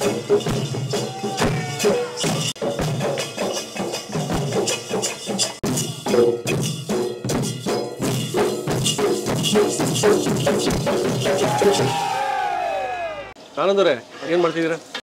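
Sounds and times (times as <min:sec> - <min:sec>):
barrel drums beating: 0:00.0 - 0:12.0
hand cymbals: 0:00.0 - 0:12.1.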